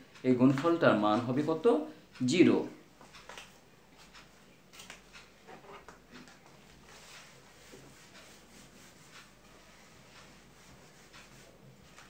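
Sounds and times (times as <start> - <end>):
duster wiping whiteboard: 6.6 - 12.0.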